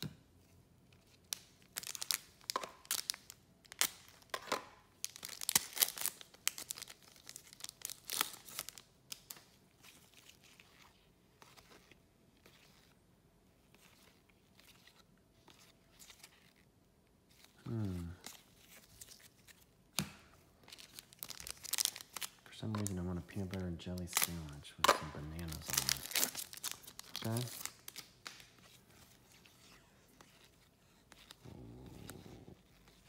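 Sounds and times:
foil wrapper crackling: 1.2 - 4.3, 5.0 - 9.4, 20.8 - 28.5.

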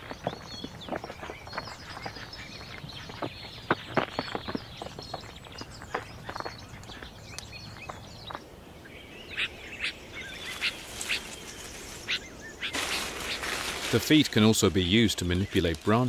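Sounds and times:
hooves clicking on rock: 0.0 - 8.5, 10.4 - 16.0
small birds chirping: 0.0 - 16.0
foliage rustling: 9.7 - 16.0.

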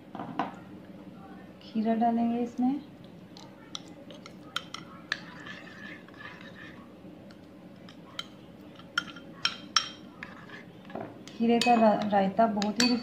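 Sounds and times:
spoon clinking against bowl: 3.7 - 6.7, 7.8 - 10.6, 11.3 - 13.0
spoon scraping cucumber in bowl: 4.1 - 6.8, 7.8 - 10.7.

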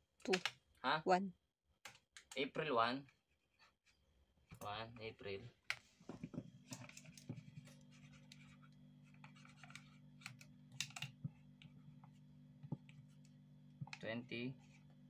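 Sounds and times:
steady low hum: 4.6 - 15.0
marker pen writing on tape: 6.8 - 10.3.

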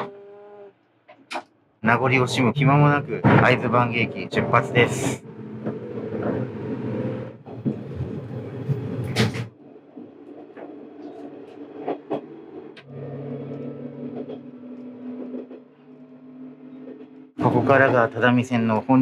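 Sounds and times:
engine drone: 1.8 - 9.3, 11.0 - 18.4
railcar running noise: 1.8 - 19.0.

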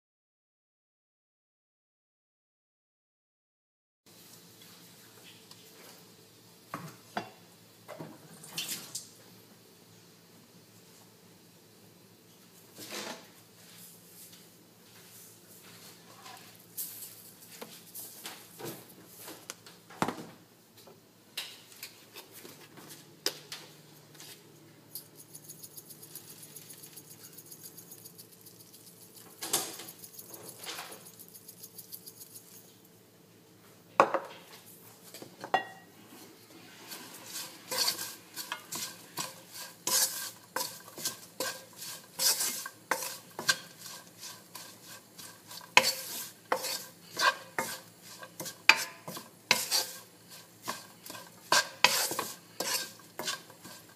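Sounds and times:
spatula scraping frying pan: 36.7 - 53.9
utensils clinking against pan: 37.2 - 53.9.

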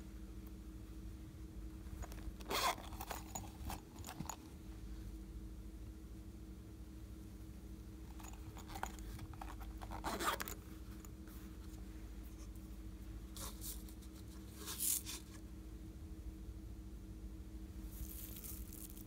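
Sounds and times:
faint steady hum: 0.0 - 19.0
plastic case rustling and scraping: 1.9 - 4.6, 8.1 - 12.6.

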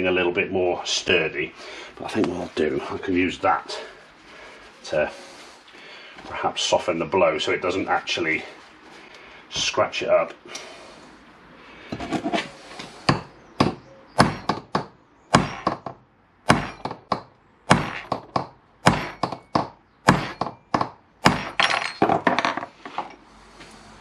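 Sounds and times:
hammer striking steel punch: 13.1 - 22.0.

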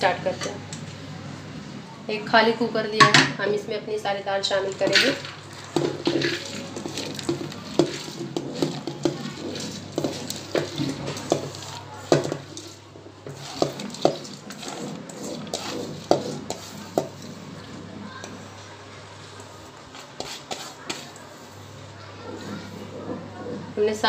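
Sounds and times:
lentils pattering into pot: 4.6 - 17.2.

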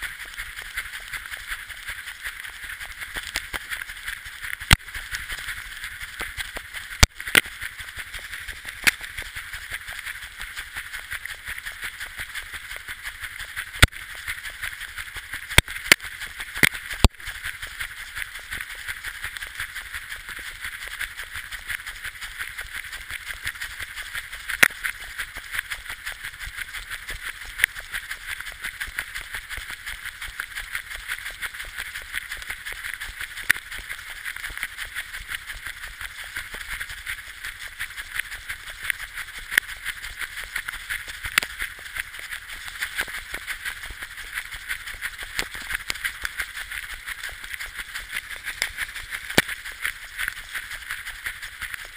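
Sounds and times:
patter of dog paws: 0.0 - 51.9.

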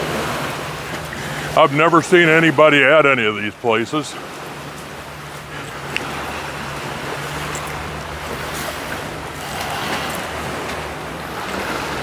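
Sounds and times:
waves washing on beach: 0.0 - 12.0
low motor hum: 4.2 - 12.0.

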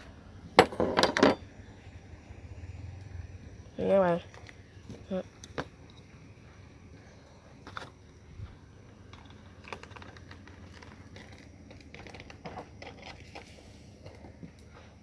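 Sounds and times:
food cooking clicks and pops: 9.1 - 13.4.

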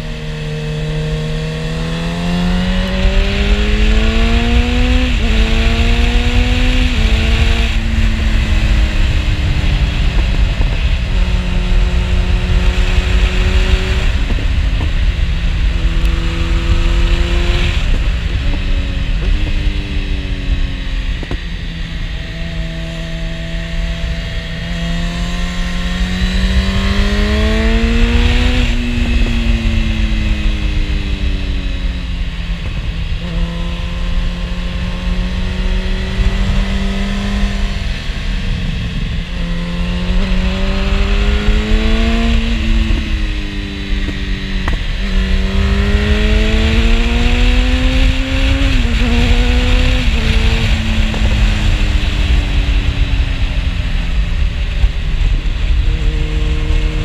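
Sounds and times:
motorcycle engine revving: 0.0 - 57.0
wind rush: 0.0 - 57.0.

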